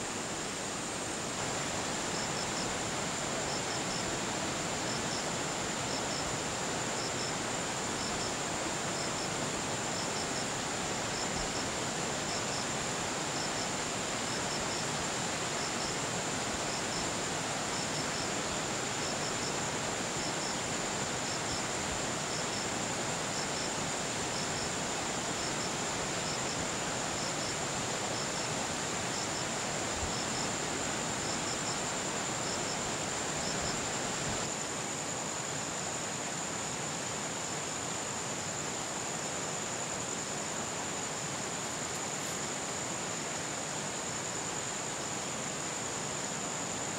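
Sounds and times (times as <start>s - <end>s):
insect double chirp: 1.8s - 34.5s.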